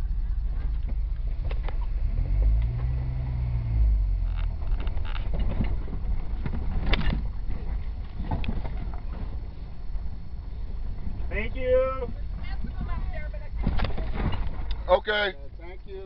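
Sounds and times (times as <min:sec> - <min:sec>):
engine rumbling at low revs: 0:00.0 - 0:16.0
sharp knocks and rattles: 0:04.2 - 0:10.3, 0:12.1 - 0:14.9.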